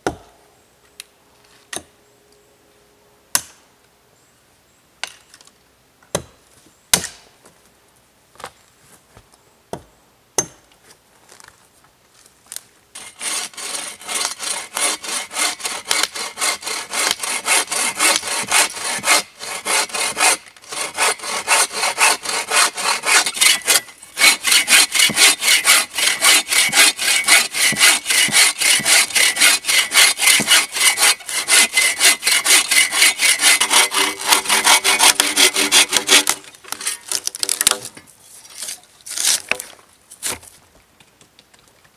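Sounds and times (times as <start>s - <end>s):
bow saw cutting log: 13.0s - 37.8s.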